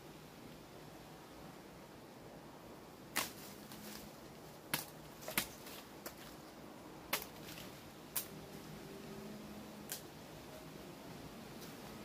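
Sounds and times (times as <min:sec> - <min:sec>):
faint forest hiss: 0:00.0 - 0:12.0
blade chopping branches: 0:03.1 - 0:04.1, 0:04.7 - 0:06.4, 0:07.1 - 0:08.3.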